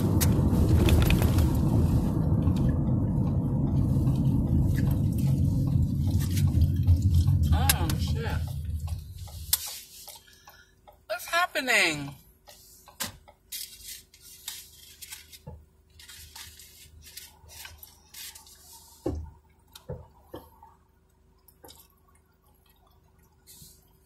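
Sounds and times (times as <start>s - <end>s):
car cabin hum: 0.0s - 9.6s.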